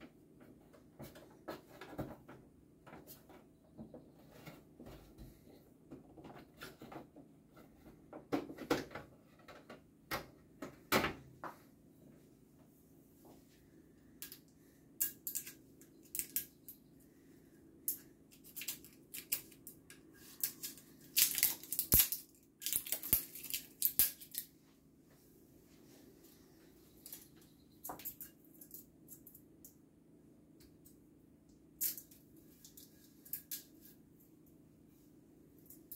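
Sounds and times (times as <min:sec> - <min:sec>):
plastic parts clicking and knocking: 0:05.8 - 0:11.2, 0:14.2 - 0:16.8, 0:17.9 - 0:24.5
packaging crinkling and tearing: 0:20.4 - 0:24.4.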